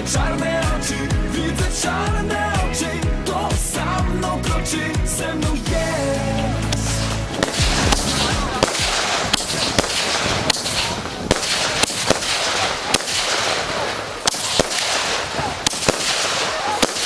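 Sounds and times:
fireworks crackling: 0:05.5 - 0:17.0
firework bangs: 0:06.8 - 0:17.0.

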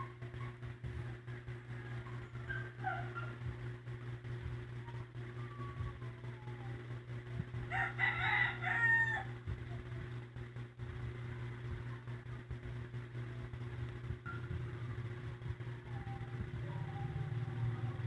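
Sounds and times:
steady low hum: 0:00.0 - 0:18.0
rooster crowing: 0:07.7 - 0:09.4.

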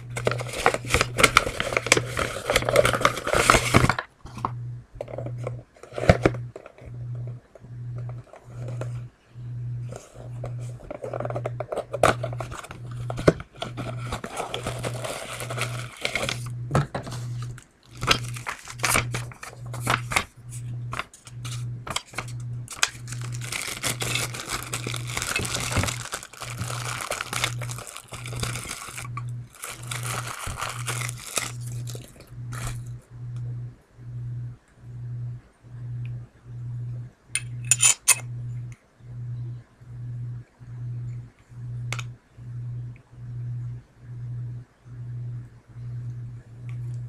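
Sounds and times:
paper and plastic crinkling: 0:00.0 - 0:04.2, 0:09.9 - 0:32.9
low pulsing hum: 0:00.0 - 0:47.0
metal and glass parts clicking: 0:37.4 - 0:38.2.

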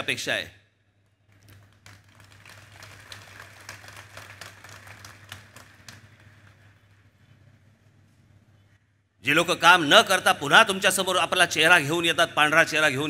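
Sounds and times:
crowd applauding: 0:01.3 - 0:07.2.

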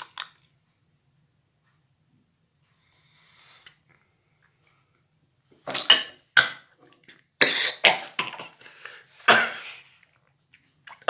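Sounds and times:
man coughing: 0:07.4 - 0:09.8.

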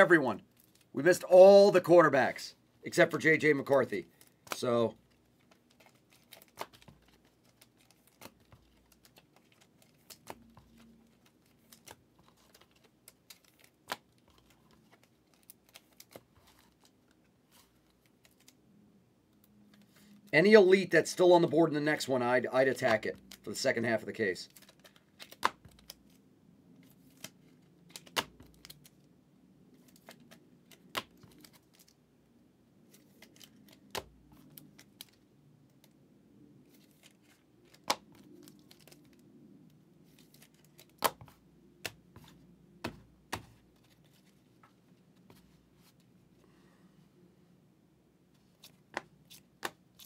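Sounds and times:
cards clicking: 0:24.5 - 0:26.0, 0:27.0 - 0:28.9.

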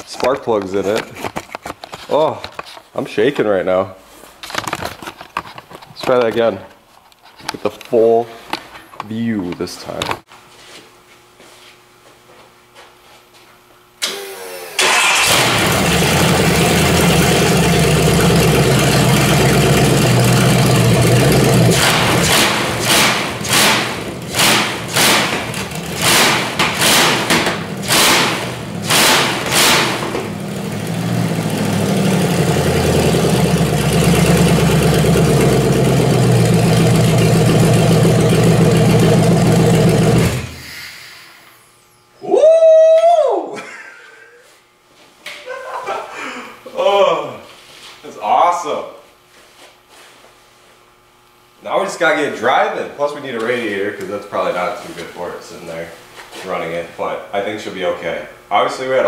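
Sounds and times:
engine cranking on starter: 0:14.8 - 0:30.3, 0:32.8 - 0:40.7
engine revving: 0:14.8 - 0:40.6
engine running: 0:14.8 - 0:40.9.

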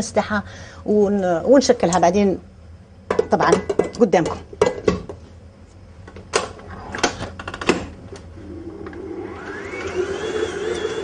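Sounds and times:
stand mixer motor whining: 0:08.6 - 0:11.0.

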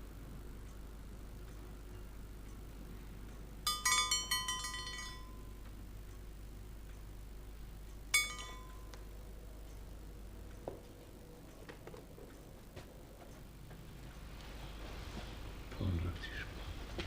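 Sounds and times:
faint ticks: 0:00.5 - 0:03.5, 0:05.6 - 0:08.1
bright ringing clink: 0:03.6 - 0:05.6, 0:08.1 - 0:09.0.

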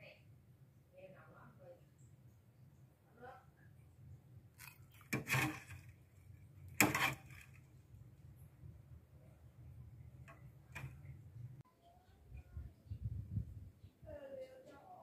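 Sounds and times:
metal ladle scraping a pot: 0:04.6 - 0:07.6.

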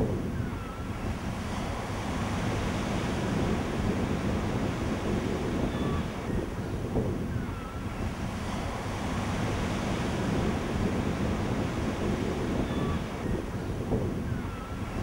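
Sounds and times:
waves breaking: 0:00.0 - 0:15.0
wind: 0:00.0 - 0:15.0.

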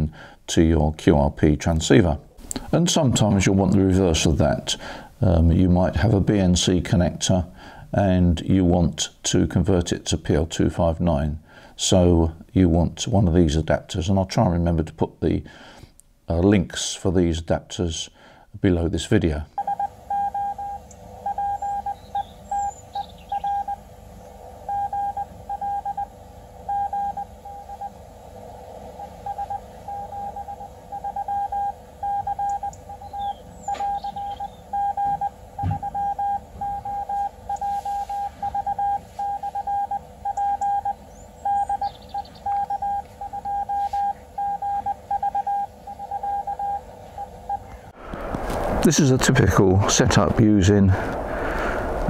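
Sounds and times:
radio band noise hiss: 0:16.6 - 0:52.0
morse code beeps: 0:19.6 - 0:23.8, 0:24.7 - 0:26.1, 0:26.7 - 0:28.0, 0:29.0 - 0:47.7.

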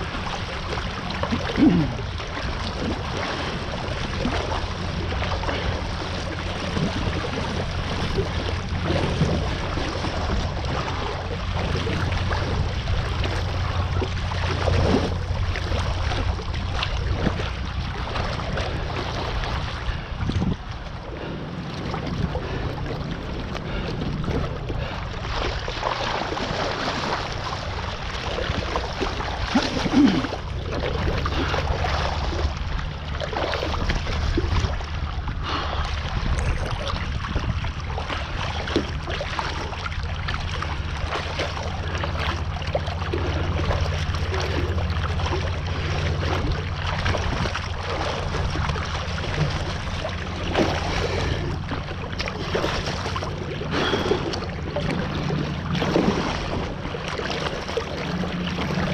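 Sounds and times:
rushing water and spray: 0:00.0 - 0:58.9
wind rumbling on microphone: 0:00.0 - 0:58.9.

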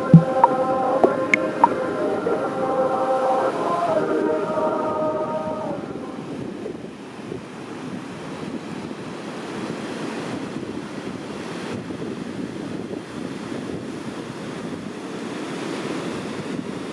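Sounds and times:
wind buffeting microphone: 0:06.2 - 0:15.0.

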